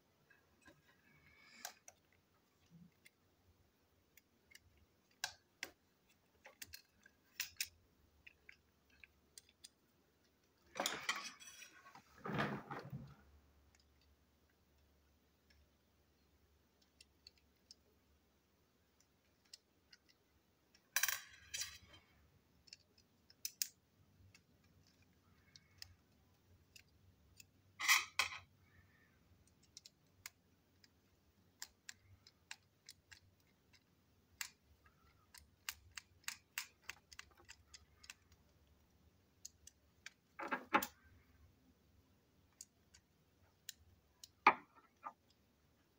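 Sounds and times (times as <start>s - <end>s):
small plastic parts clicking: 0.6s - 3.3s, 4.0s - 11.6s, 13.6s - 45.9s.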